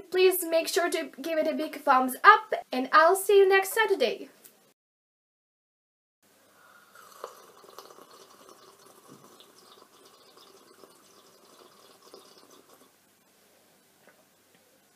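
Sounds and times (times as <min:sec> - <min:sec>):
sipping from a mug: 0:06.6 - 0:12.9
wet liquid sounds: 0:06.8 - 0:12.9.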